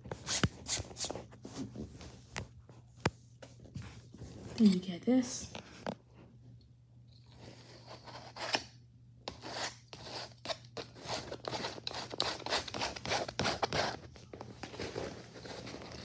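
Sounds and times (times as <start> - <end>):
palette knife scraping paint: 7.4 - 8.7, 9.3 - 14.0.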